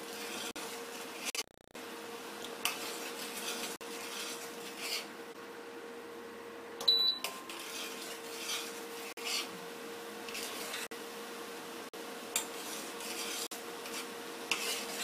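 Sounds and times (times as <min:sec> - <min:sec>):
steel spoon scraping a pan: 0:00.0 - 0:01.4, 0:02.6 - 0:05.1, 0:07.2 - 0:09.6, 0:10.2 - 0:10.9, 0:12.3 - 0:15.0
short high beep: 0:06.9 - 0:07.5.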